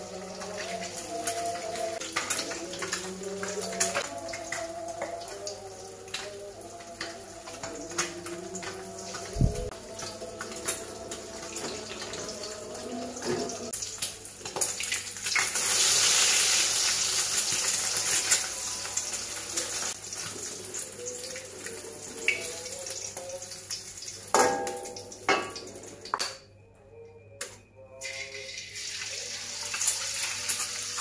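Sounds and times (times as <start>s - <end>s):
egg sizzling in hot oil: 13.7s - 25.7s, 28.5s - 31.0s.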